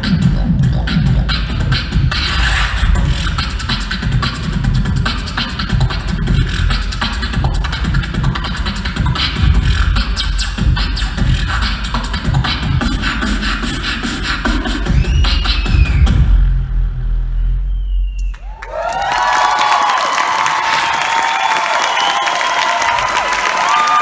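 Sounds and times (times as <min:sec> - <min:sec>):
amplified beatboxing: 0:00.0 - 0:16.5.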